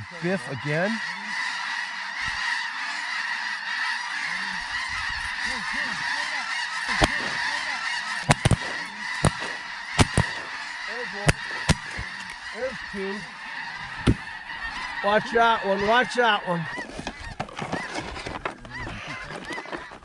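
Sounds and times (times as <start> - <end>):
geese honking: 0.0 - 20.0
sharp clicks: 8.2 - 10.5.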